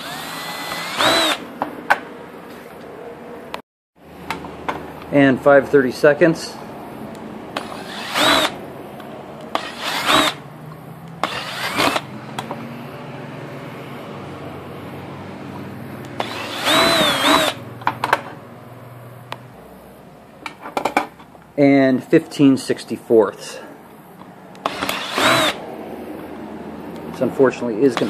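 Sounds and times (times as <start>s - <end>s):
drill bit screeching on metal: 0.0s - 1.4s, 7.6s - 8.6s, 9.6s - 10.4s, 11.2s - 12.0s, 16.2s - 17.6s, 24.6s - 25.6s
electric drill motor hum: 0.0s - 1.4s, 7.6s - 8.6s, 9.6s - 10.4s, 11.2s - 12.1s, 16.0s - 17.6s, 24.6s - 25.6s.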